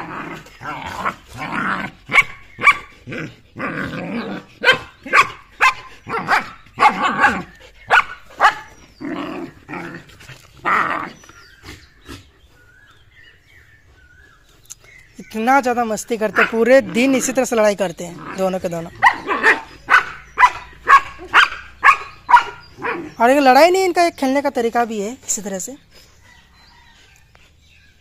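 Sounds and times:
dogs growling: 0.0s - 14.5s, 16.2s - 23.2s
dogs barking sharply: 1.9s - 2.9s, 4.6s - 8.8s, 18.9s - 23.2s.

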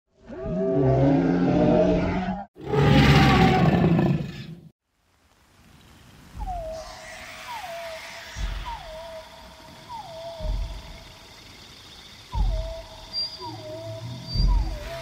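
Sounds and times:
dinosaur roars: 0.2s - 4.6s
faint hiss: 4.9s - 14.3s.

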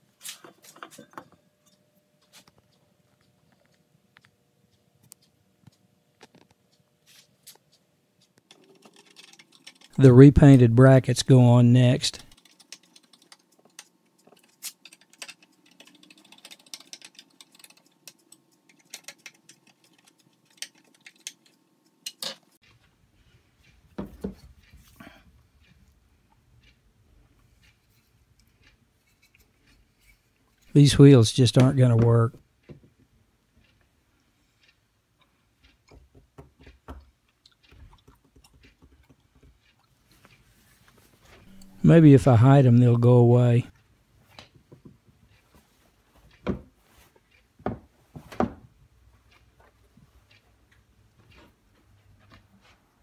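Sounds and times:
screwdriver clicks and scrapes: 12.2s - 22.7s
handling clicks and taps: 35.6s - 40.4s.

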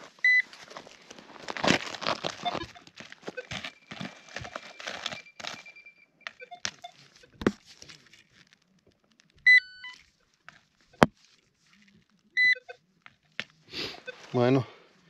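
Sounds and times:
stepped electronic beeps: 2.4s - 7.4s, 9.4s - 10.0s.

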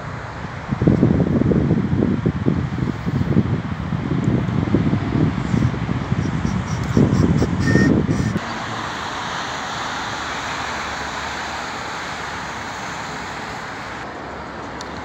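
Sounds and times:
wind rumble on microphone: 0.0s - 10.1s
distant road traffic: 0.0s - 15.0s.

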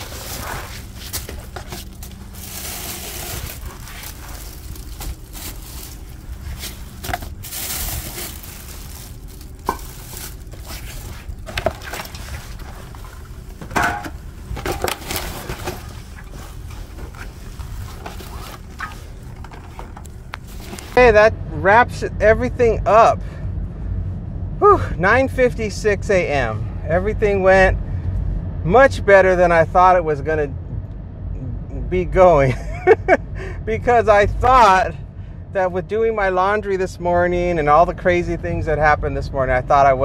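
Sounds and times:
bags rustling: 0.0s - 13.6s, 14.5s - 21.0s.

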